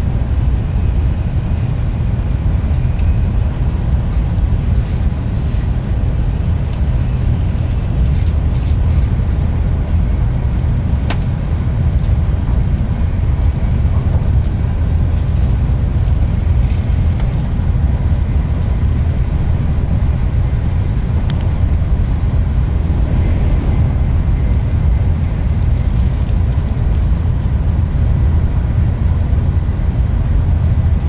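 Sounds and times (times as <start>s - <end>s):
train rumble from inside cabin: 0.0s - 31.0s.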